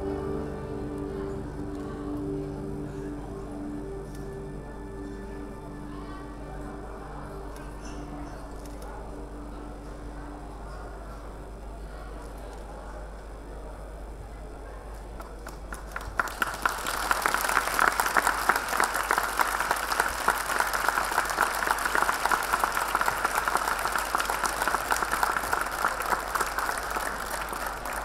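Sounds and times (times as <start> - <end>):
audience applauding: 15.2 - 28.0.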